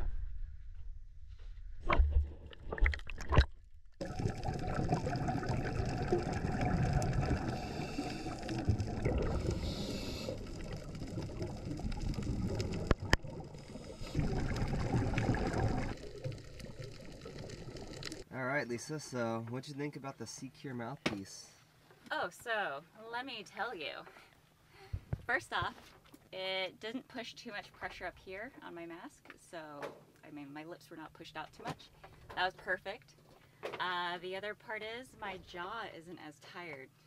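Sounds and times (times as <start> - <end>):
muffled underwater rush: 4.0 - 18.2
regulator bubbles gurgling: 4.0 - 18.3.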